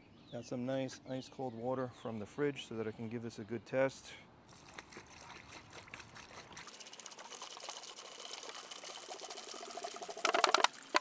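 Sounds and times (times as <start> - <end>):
water pouring onto ice cubes: 4.5 - 11.0.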